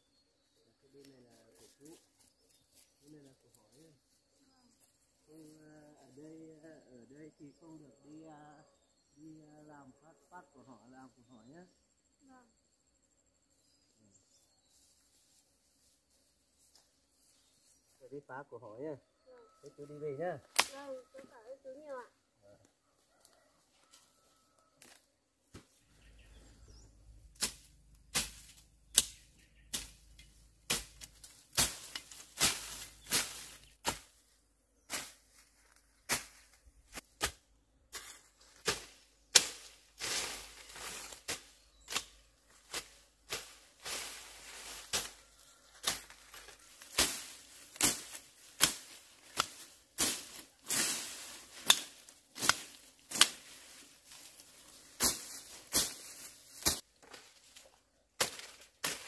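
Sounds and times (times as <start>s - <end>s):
swishes and snaps of dry stems: 20.5s - 20.8s, 27.3s - 34.2s, 34.9s - 37.4s, 38.0s - 59.0s
dry grass rustling: 22.8s - 59.0s.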